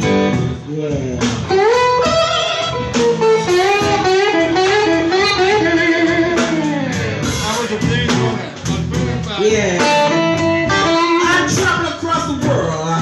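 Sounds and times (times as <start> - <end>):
electric guitar melody: 0.0 - 13.0
live blues band playing: 0.0 - 13.0.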